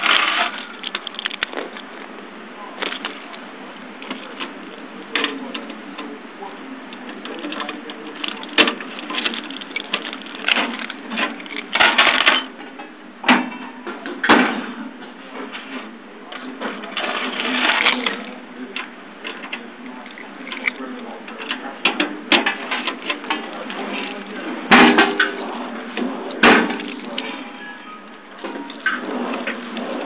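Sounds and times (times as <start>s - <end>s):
keys rattling: 0.0s - 1.9s, 7.5s - 12.5s.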